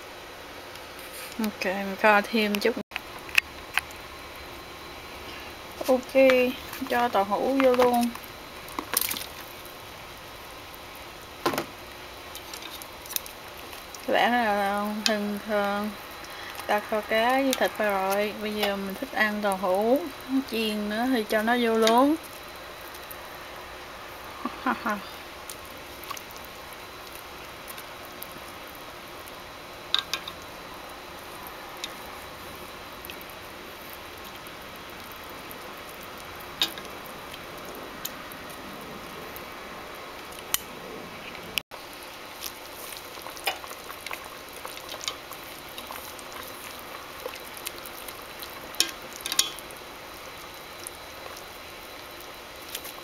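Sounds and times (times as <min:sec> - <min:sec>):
faint steady hiss: 0:00.0 - 0:53.0
chopsticks clicking against pot: 0:29.9 - 0:30.4, 0:48.8 - 0:49.6.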